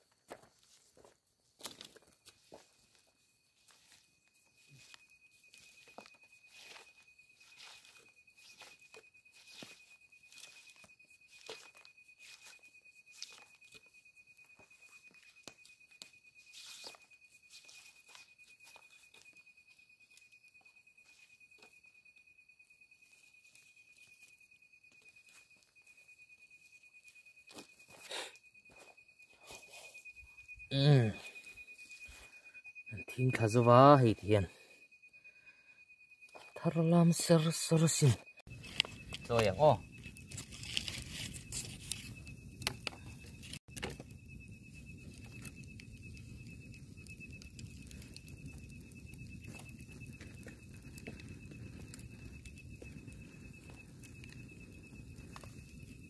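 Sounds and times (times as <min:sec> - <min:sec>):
faint high insect whine: 0:00.0 - 0:56.0
soft clicks and crackles: 0:38.5 - 0:56.0.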